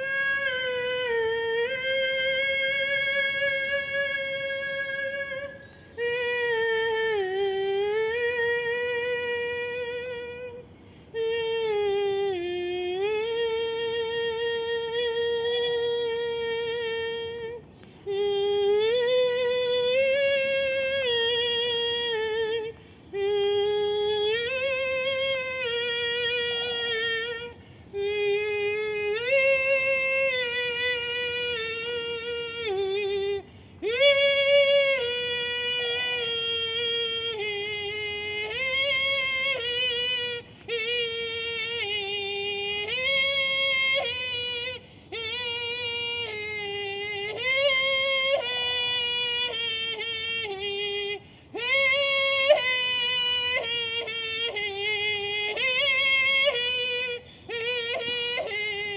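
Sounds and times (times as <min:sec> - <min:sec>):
woman singing held vowel tones: 0:00.0 - 0:58.9
short breaths: 0:10.6 - 0:11.2, 0:22.7 - 0:23.2, 0:27.5 - 0:28.0, 0:33.4 - 0:33.8, 0:44.8 - 0:45.1, 0:51.2 - 0:51.6.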